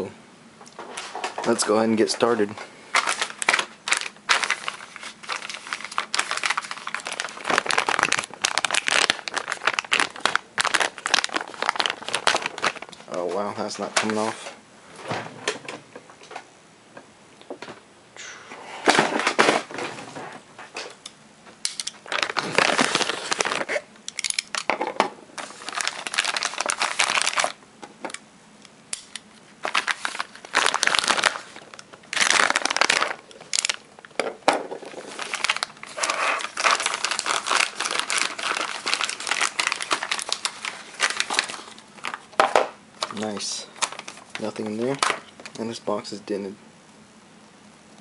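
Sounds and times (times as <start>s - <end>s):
plastic bag crinkling: 1.1s - 14.3s, 21.7s - 24.7s, 25.4s - 27.6s, 29.6s - 45.7s
bag tearing: 2.9s - 12.9s, 22.0s - 23.9s, 25.4s - 27.6s, 29.6s - 33.8s, 34.8s - 42.2s.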